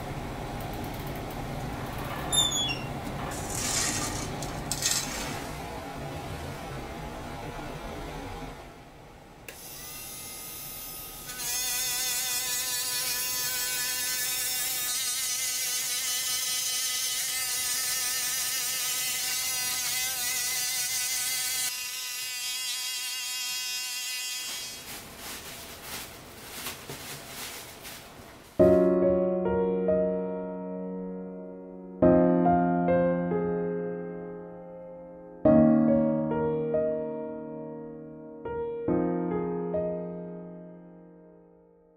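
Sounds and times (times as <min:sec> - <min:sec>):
gentle piano music: 0:28.6 - 0:41.9.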